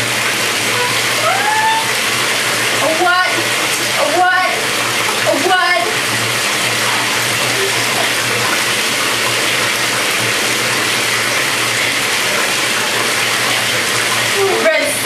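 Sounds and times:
water pouring into bathtub: 0:00.0 - 0:15.0.

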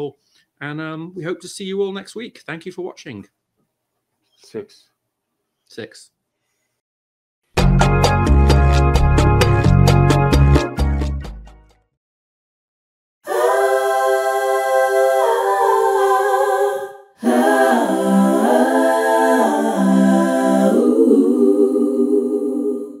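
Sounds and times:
a cappella voices singing chords: 0:13.2 - 0:23.0.

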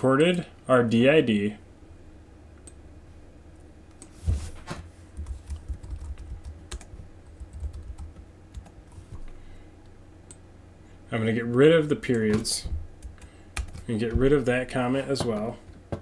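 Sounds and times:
keyboard typing: 0:05.2 - 0:09.2, 0:12.1 - 0:13.9.

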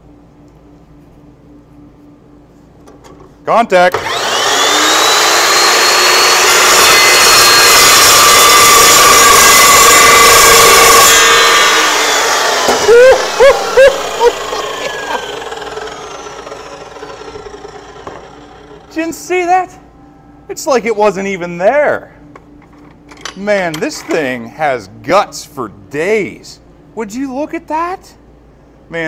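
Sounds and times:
miter saw whine: 0:03.9 - 0:19.1
saw blade cutting steel bar: 0:04.0 - 0:18.9.

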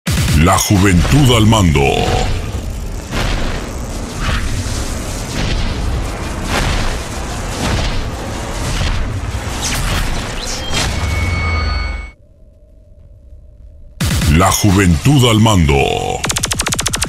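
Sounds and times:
whooshing hits: 0:02.2 - 0:11.4.

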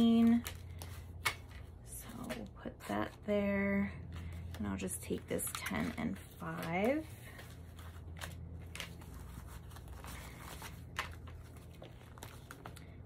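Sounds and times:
paper banknotes rustling: 0:03.8 - 0:13.0.

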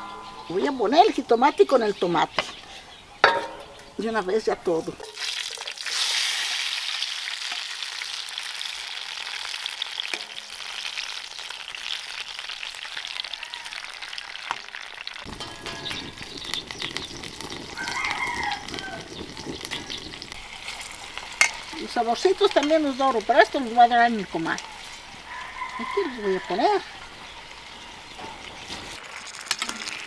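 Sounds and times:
tomatoes sizzling in hot fat: 0:03.9 - 0:30.0
metal spatula in pan: 0:10.0 - 0:10.8, 0:15.2 - 0:18.0, 0:19.6 - 0:23.7
rooster crowing: 0:13.2 - 0:14.5, 0:17.6 - 0:19.2, 0:25.1 - 0:27.2.

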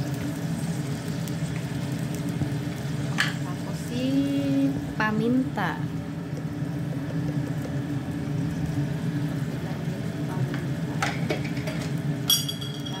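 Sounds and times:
faint sizzle: 0:00.0 - 0:13.0
metal spoon clink: 0:12.3 - 0:13.0.

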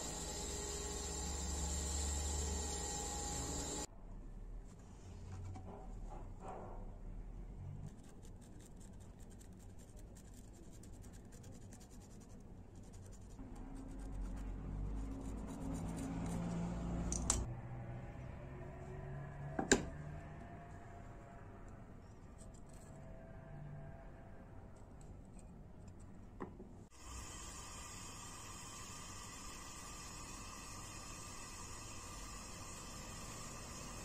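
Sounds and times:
pencil scratching on horn: 0:07.9 - 0:16.7.

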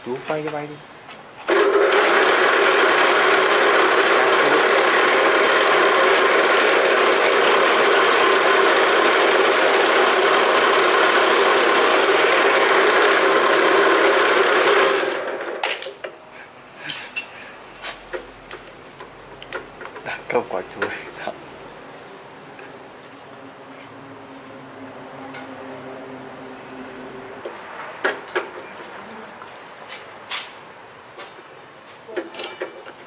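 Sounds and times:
drill press motor running: 0:01.5 - 0:15.6.

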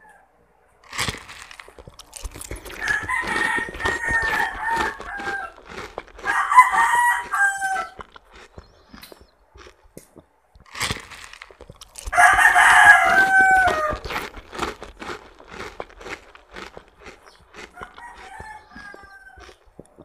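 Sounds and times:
crunchy biting and chewing: 0:00.8 - 0:20.0
rooster crowing: 0:02.4 - 0:08.0, 0:12.0 - 0:14.6, 0:17.5 - 0:19.6.

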